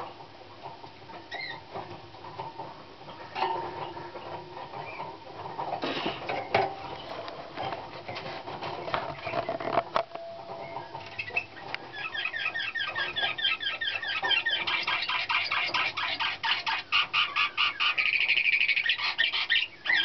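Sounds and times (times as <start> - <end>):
canary singing: 1.2 - 1.8, 3.1 - 5.7, 9.0 - 20.0.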